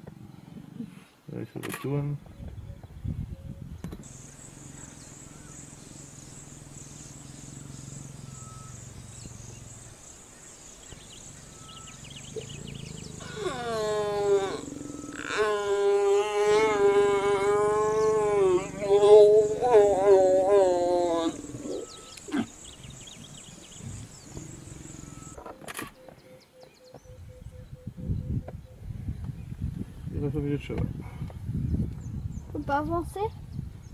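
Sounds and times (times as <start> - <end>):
lions growling and snarling: 4.0 - 25.4.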